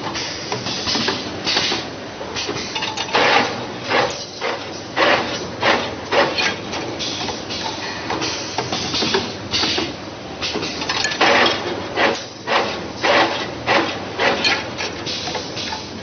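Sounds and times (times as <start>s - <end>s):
pneumatic cylinders actuating: 0.2s - 16.0s
wire bending machine clattering: 2.8s - 6.8s, 10.8s - 15.0s.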